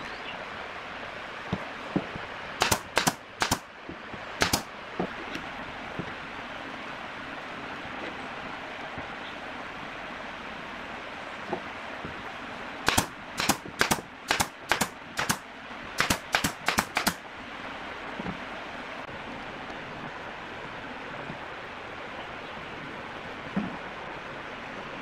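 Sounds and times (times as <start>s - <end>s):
nail gun firing: 2.6s - 3.7s, 4.4s - 4.7s, 12.9s - 15.4s, 16.0s - 17.2s.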